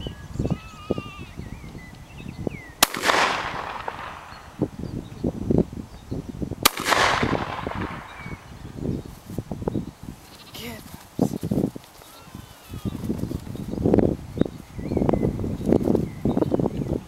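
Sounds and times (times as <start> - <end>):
shotgun shots: 2.8 - 4.6, 6.6 - 8.5.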